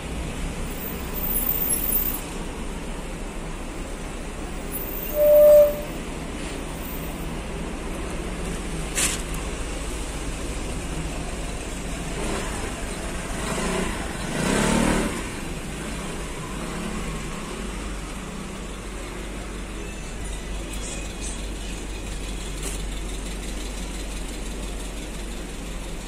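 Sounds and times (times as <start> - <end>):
road traffic hum: 0.0 - 26.0
vehicle passing by: 12.0 - 18.1.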